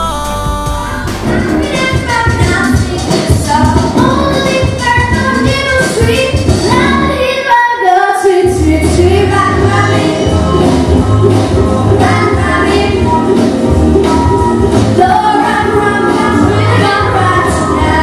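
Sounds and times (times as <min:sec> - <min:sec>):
girls singing pop song: 0:00.0 - 0:13.5, 0:14.9 - 0:18.0
backing music: 0:00.0 - 0:18.0.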